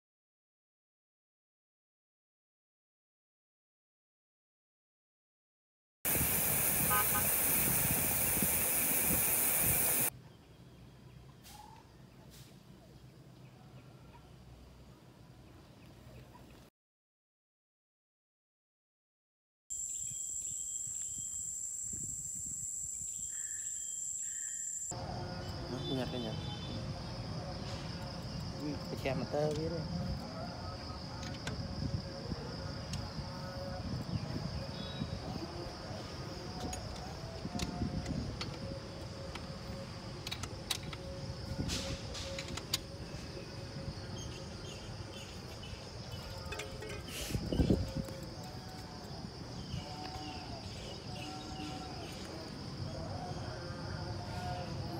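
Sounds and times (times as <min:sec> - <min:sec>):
high insect chirring: 0:06.1 - 0:10.1, 0:19.7 - 0:25.9
high-pitched insect drone: 0:06.1 - 0:10.1, 0:19.7 - 0:54.9
bird chirps: 0:22.8 - 0:24.9.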